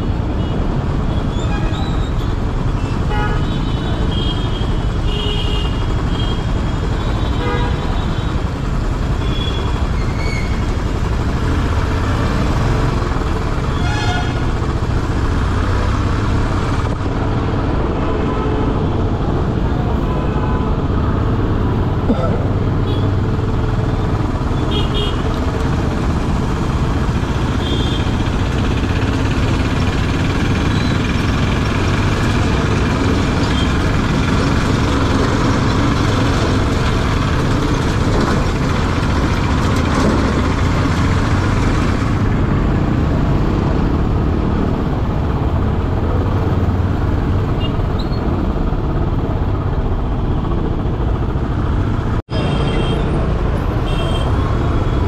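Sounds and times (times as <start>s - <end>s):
wind and road noise: 0.0s - 55.0s
motorcycle engine running: 20.7s - 52.2s
vehicle horn toots: 53.8s - 54.4s.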